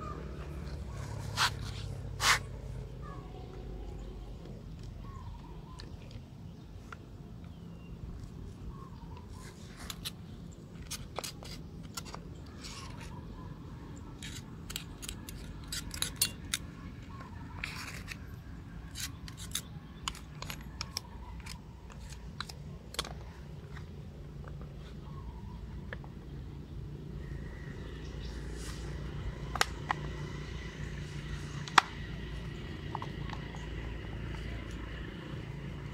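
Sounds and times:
clicks of plastic and metal parts: 18.9 - 24.7.

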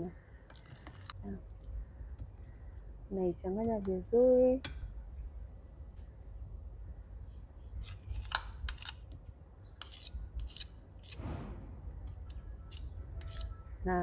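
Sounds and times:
spoon scraping glass bowl: 13.2 - 13.6.

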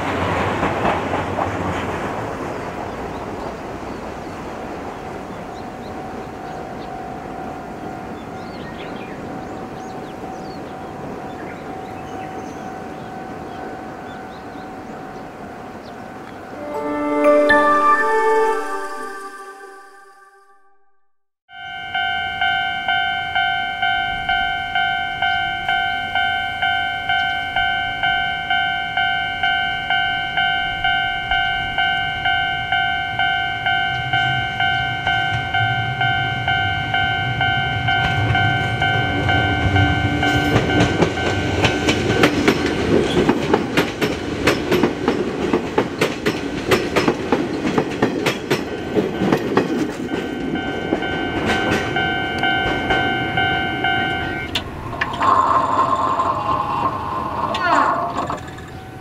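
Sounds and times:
train wheels clicking over rail joints: 0.0 - 3.2, 37.3 - 59.0
electric train rumble: 0.0 - 17.8, 21.7 - 59.0
level crossing bell ringing: 16.5 - 20.5, 21.5 - 43.0, 48.5 - 54.6.

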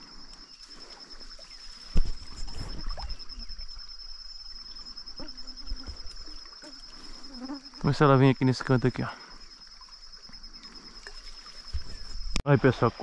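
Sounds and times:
insect trilling: 0.0 - 12.4
stream running: 0.0 - 13.0
sudden thump: 1.9 - 2.8.

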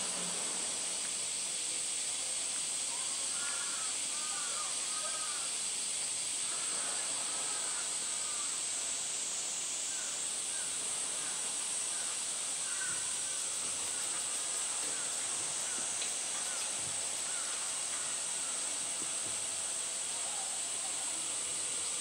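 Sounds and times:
cicada chorus drone: 0.0 - 22.0.

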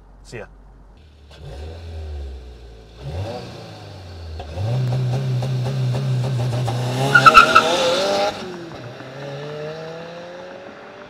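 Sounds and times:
car engine revving: 1.0 - 11.0
tyre squeal: 7.1 - 8.3.

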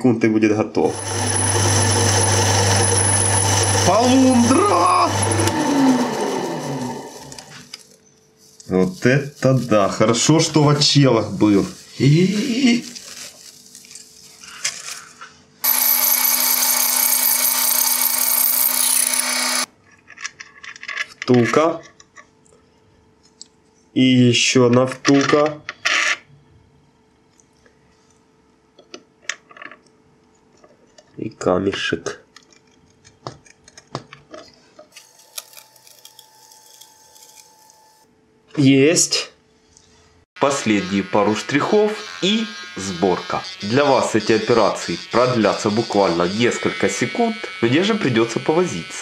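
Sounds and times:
drill cutting metal hiss: 0.9 - 7.5, 15.6 - 19.7, 40.4 - 49.0
lathe motor hum: 0.9 - 7.6, 15.6 - 19.7, 40.4 - 49.0.

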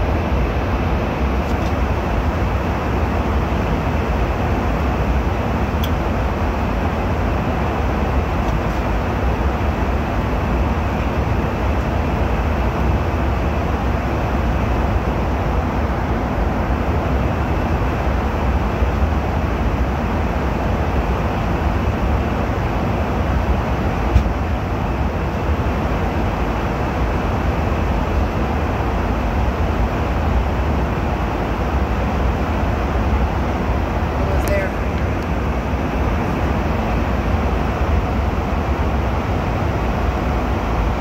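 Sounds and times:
airliner cabin noise: 0.0 - 41.0
small click: 5.8 - 6.0.

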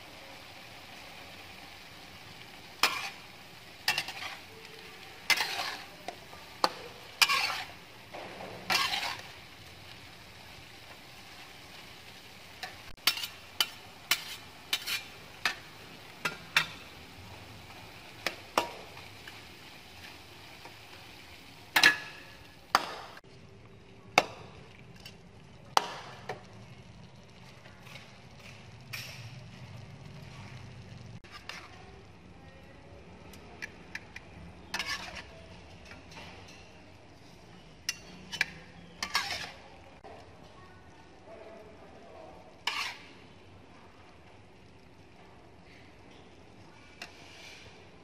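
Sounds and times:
food sizzling: 0.0 - 48.0
spatula scraping a wok: 0.6 - 22.8, 27.4 - 31.9, 34.6 - 40.0, 42.5 - 43.4, 46.8 - 48.0.

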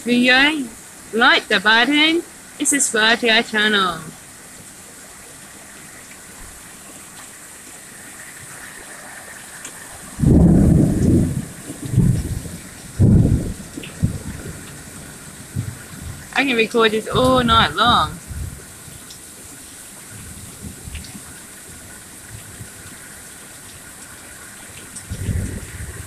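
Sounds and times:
rain on a tin roof: 0.0 - 26.0
thunder rumble: 10.1 - 16.4, 25.0 - 26.0.

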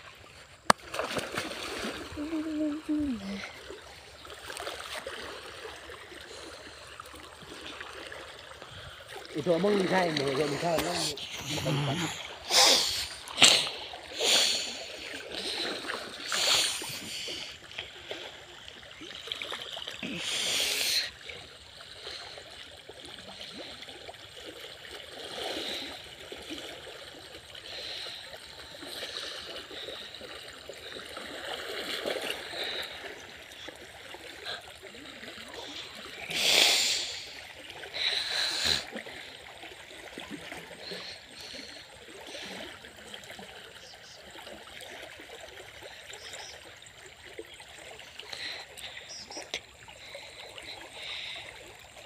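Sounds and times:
stream running over rocks: 0.0 - 52.0.

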